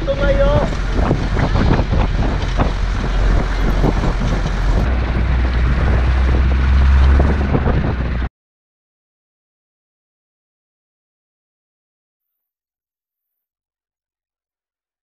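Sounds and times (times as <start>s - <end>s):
jeep driving over gravel: 0.0s - 8.3s
wind buffeting microphone: 0.0s - 8.3s
vehicle knocks and jolts: 0.1s - 8.3s.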